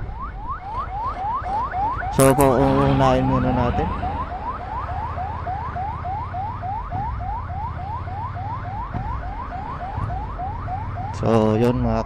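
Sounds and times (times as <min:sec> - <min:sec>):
ambulance siren yelping: 0:00.0 - 0:12.0.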